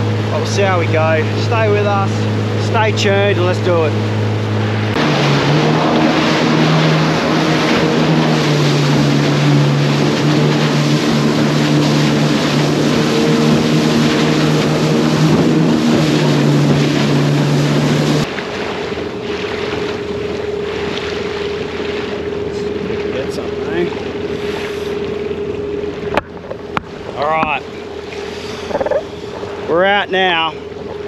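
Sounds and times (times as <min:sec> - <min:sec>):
steady hum: 0:00.0 - 0:18.3
jet ski engine running: 0:00.0 - 0:31.0
wind and water rushing: 0:00.0 - 0:31.0.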